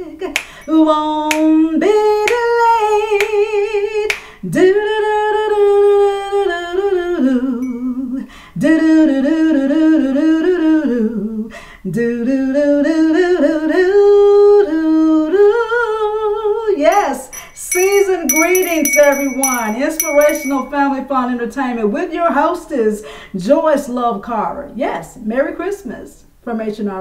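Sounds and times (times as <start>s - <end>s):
woman singing a cappella: 0.0s - 16.8s.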